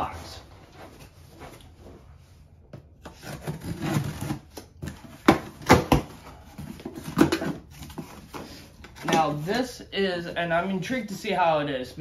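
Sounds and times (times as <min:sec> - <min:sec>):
cardboard ripping: 0:03.0 - 0:06.1.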